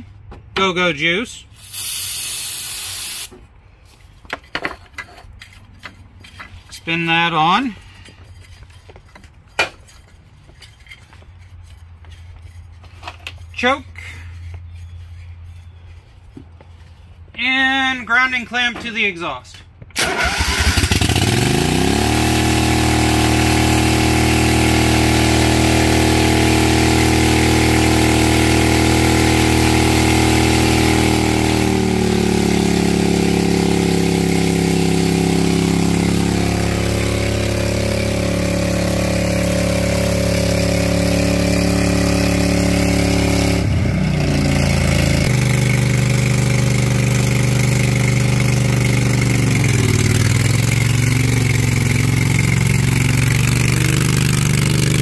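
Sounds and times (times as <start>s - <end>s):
lawn tractor engine running: 20.0s - 55.0s.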